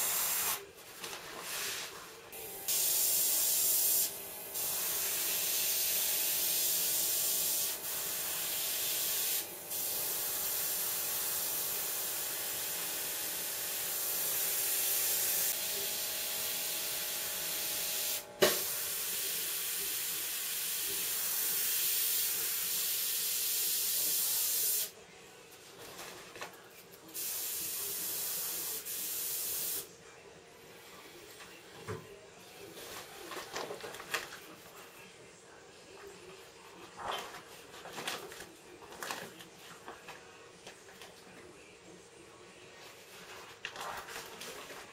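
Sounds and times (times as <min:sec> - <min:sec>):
airbrush air hiss: 0:00.0 - 0:00.6, 0:02.7 - 0:12.2.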